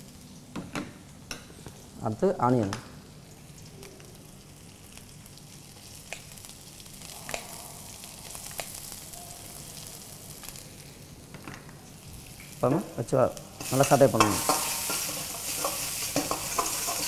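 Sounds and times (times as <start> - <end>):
vegetables sizzling in oil: 3.0 - 17.0.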